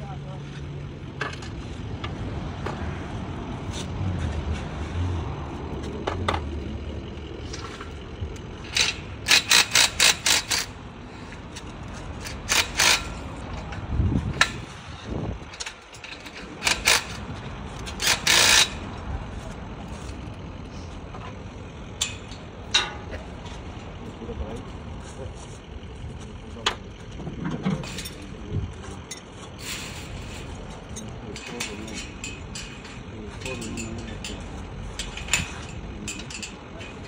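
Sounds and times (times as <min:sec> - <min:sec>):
sharp metal clanks: 0:08.6 - 0:10.8, 0:11.6 - 0:13.7, 0:15.5 - 0:18.9, 0:21.9 - 0:23.6, 0:29.0 - 0:37.0.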